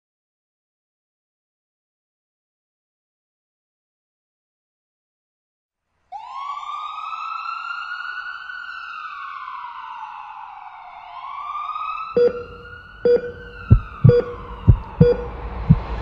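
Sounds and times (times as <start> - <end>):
wailing siren: 6.1 - 16.0.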